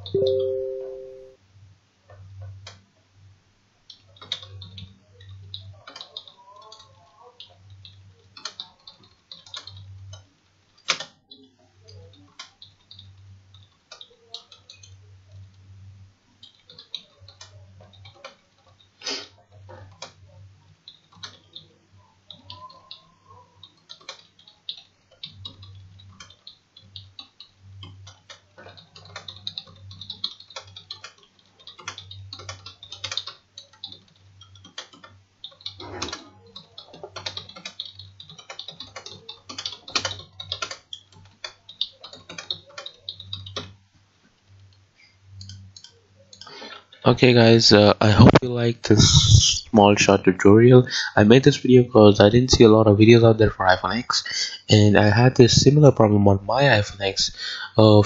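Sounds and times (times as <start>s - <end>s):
computer keyboard typing: 0.0s - 1.4s, 3.9s - 10.2s, 10.8s - 15.4s, 16.4s - 19.0s, 19.6s - 43.8s
faint low hum: 0.0s - 58.0s.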